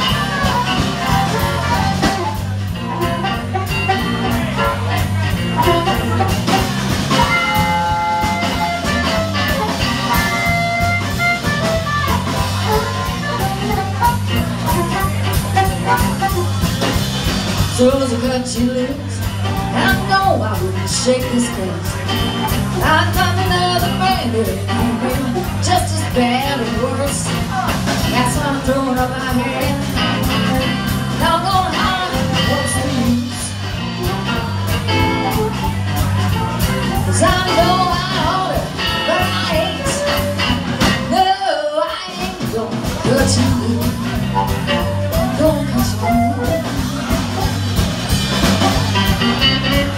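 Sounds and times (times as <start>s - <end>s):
amplified harmonica solo: 0.0s - 16.7s
amplified harmonica lead: 0.0s - 17.5s, 29.0s - 41.4s, 43.3s - 49.9s
bass guitar: 0.0s - 49.9s
blues band playing: 0.0s - 49.9s
drums keeping a steady beat: 0.0s - 49.9s
electric guitar: 0.0s - 49.9s.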